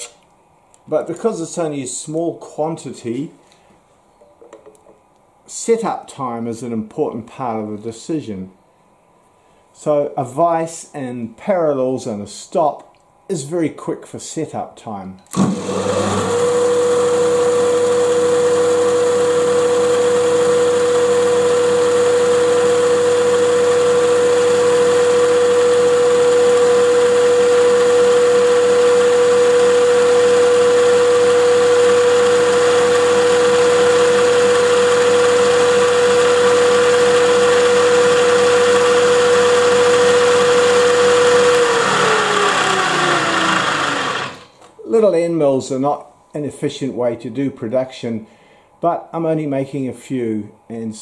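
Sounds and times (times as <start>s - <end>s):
milling machine spindle whine: 28.1s - 44.5s.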